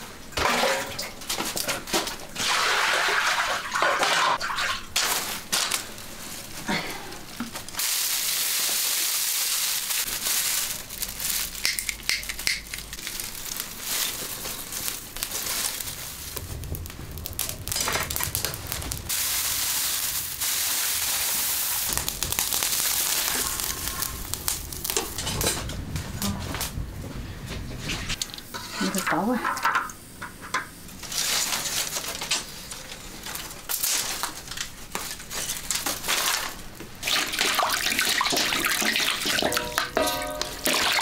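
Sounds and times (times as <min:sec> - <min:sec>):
fire crackling: 0:04.3 - 0:29.0, 0:29.6 - 0:41.0
dry straw rustling and crunching: 0:04.6 - 0:27.1, 0:30.9 - 0:41.0.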